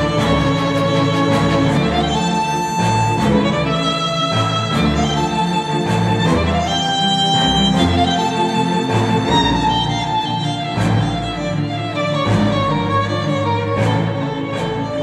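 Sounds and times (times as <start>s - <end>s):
violin and strings music: 0.0s - 15.0s.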